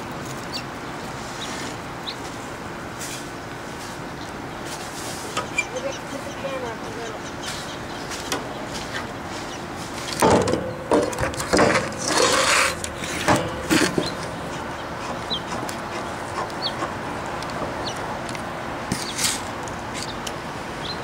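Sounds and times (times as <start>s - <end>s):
wood scraping rubs: 10.9s - 17.0s.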